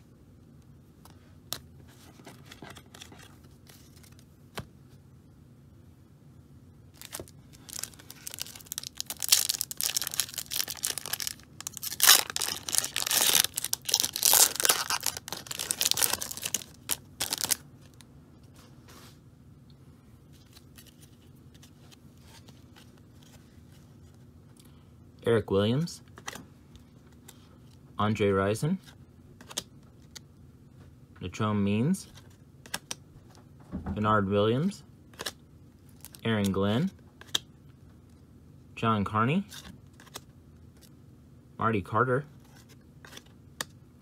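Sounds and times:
foil wrapper tearing: 0:07.0 - 0:17.6.

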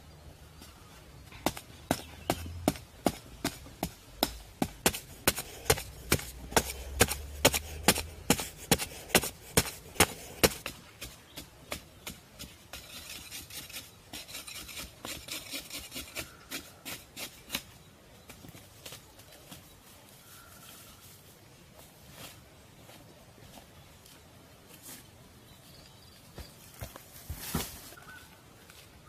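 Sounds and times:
digging tool striking ground: 0:01.4 - 0:17.7.

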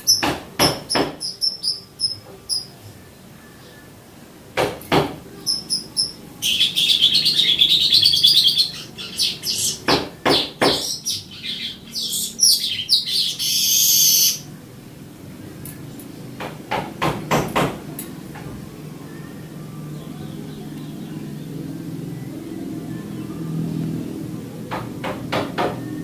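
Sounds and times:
bird singing with clicking chatter: 0:00.0 - 0:02.7, 0:05.4 - 0:13.6, 0:15.6 - 0:16.5.

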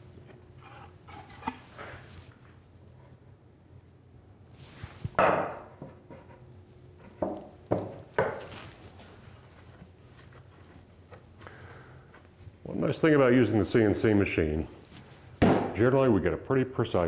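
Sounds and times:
plywood knocking against plywood: 0:07.1 - 0:08.5.

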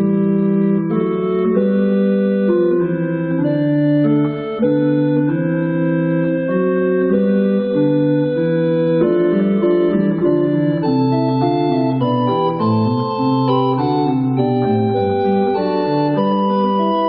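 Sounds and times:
pipe organ playing: 0:00.0 - 0:17.0.

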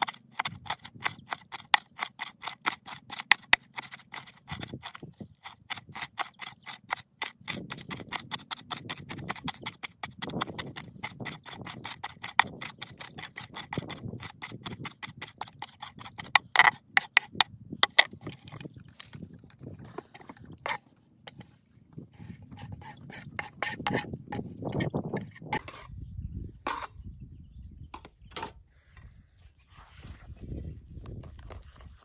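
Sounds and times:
knife chopping on wooden board: 0:00.0 - 0:18.1.

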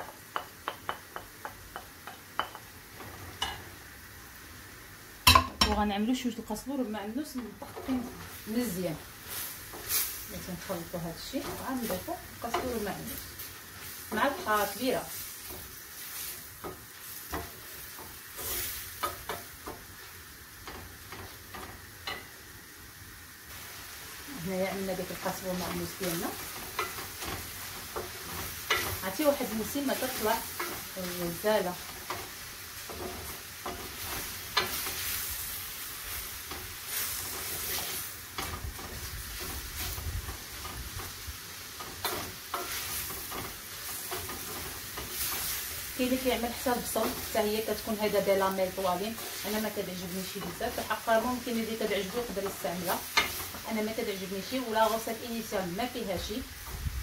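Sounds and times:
wooden spoon knocking on pan: 0:00.0 - 0:02.7
vegetables sizzling in a pan: 0:00.0 - 0:57.0.

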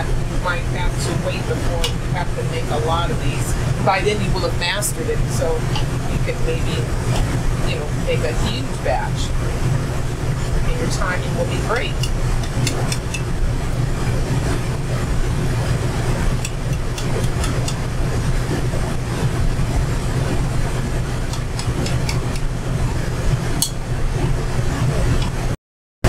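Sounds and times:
low hum: 0:00.0 - 0:25.6
utensil tapping pot: 0:11.8 - 0:13.3, 0:16.4 - 0:17.8, 0:21.3 - 0:22.5, 0:23.6 - 0:23.8.

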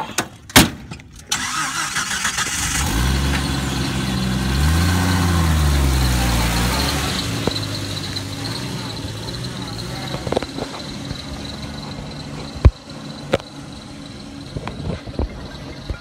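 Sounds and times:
car engine starting and idling: 0:01.0 - 0:16.0.

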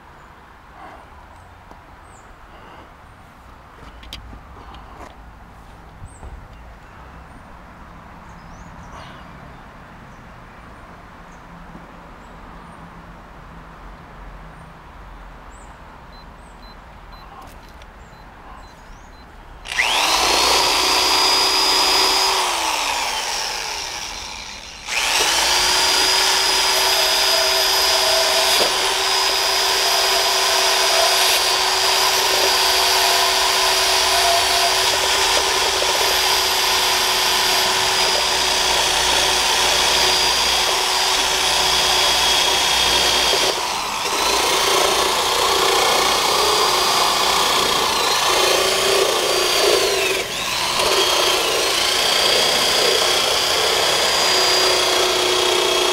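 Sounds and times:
rotary tool wire brush whining: 0:19.7 - 0:55.9.

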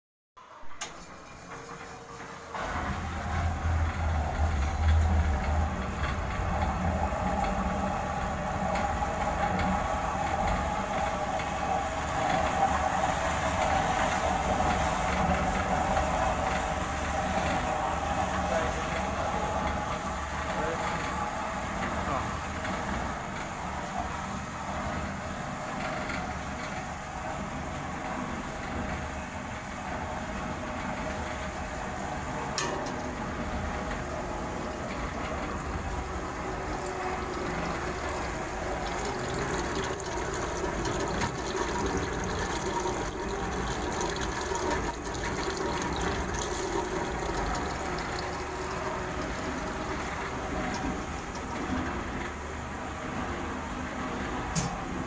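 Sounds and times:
machinery running: 0:00.4 - 0:55.0
liquid flowing: 0:31.2 - 0:53.0.

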